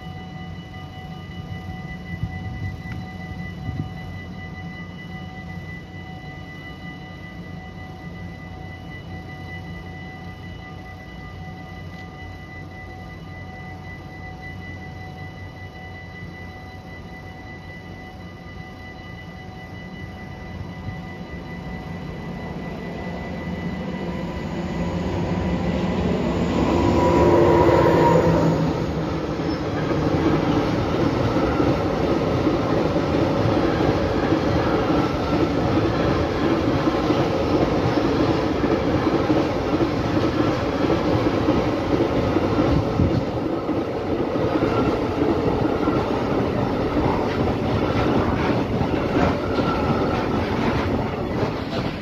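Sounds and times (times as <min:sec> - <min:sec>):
freight train wheels clattering: 0:29.4 - 0:52.0.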